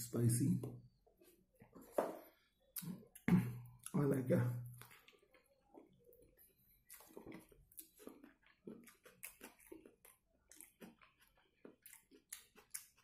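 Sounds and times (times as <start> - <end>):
person chewing food: 4.7 - 13.0.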